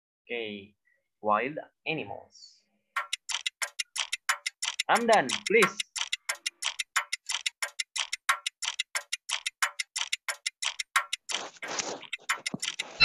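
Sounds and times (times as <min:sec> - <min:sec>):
fast clock ticking: 0:03.0 - 0:13.0.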